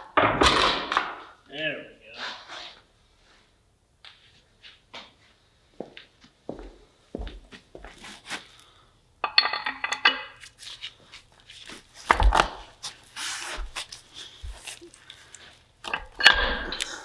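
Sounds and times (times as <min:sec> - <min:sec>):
shuffling: 0:02.1 - 0:08.8, 0:10.4 - 0:15.7.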